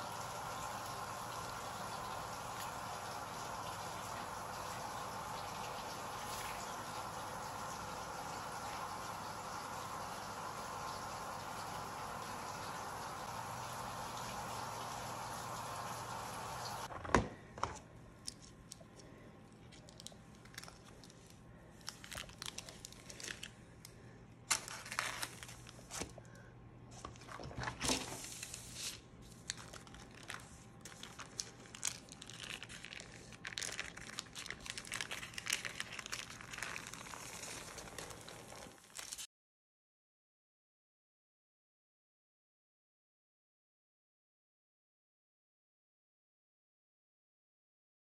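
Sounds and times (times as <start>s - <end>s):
parchment paper crinkling: 17.7s - 39.3s.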